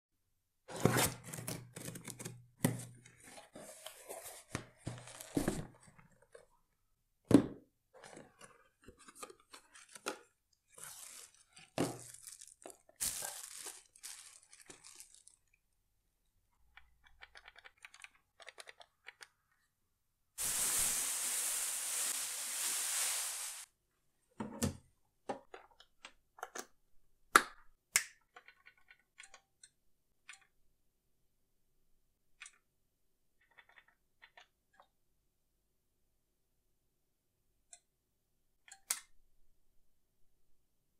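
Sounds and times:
cardboard and plastic wrap rustling: 0:03.6 - 0:05.9, 0:08.1 - 0:15.4.

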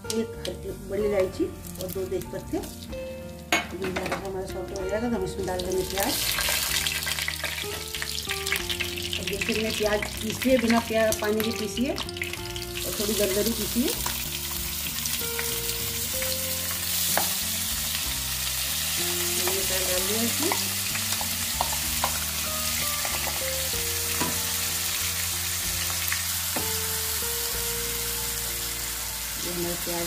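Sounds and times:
onion sizzling in hot oil: 0:00.0 - 0:03.6, 0:04.3 - 0:30.0
jar and spatula knocking on pan: 0:24.2 - 0:24.4.

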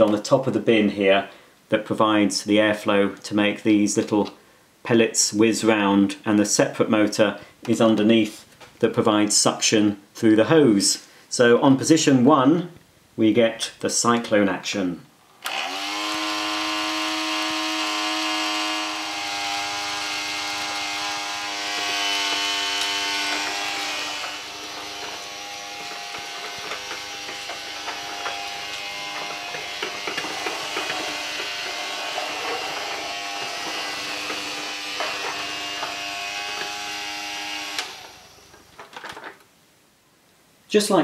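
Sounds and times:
toy vacuum motor whine: 0:15.4 - 0:38.8.

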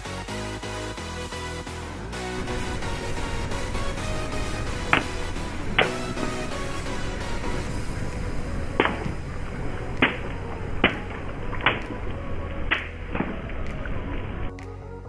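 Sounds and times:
water splashing: 0:02.3 - 0:14.7
water balloons bursting: 0:02.5 - 0:14.5.

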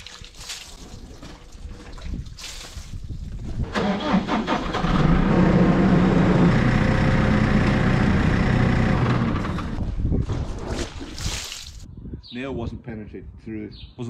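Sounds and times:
machine motor running: 0:05.3 - 0:09.8.

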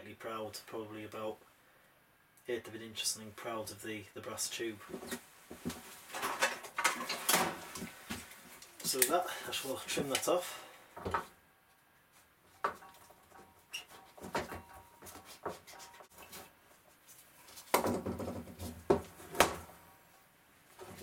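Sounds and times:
knocking and scraping: 0:12.5 - 0:16.5, 0:17.4 - 0:19.7.

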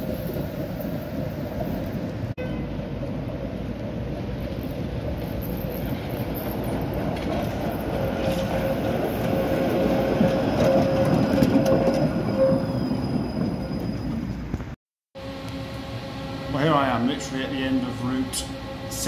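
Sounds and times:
tram rumbling past: 0:00.0 - 0:19.0
tram wheels squealing: 0:04.2 - 0:19.0.

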